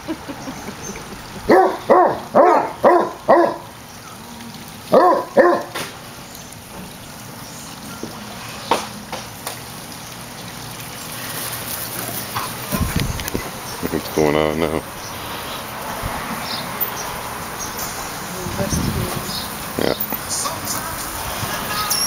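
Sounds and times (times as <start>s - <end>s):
dog barking: 1.5s - 3.7s, 4.9s - 5.8s.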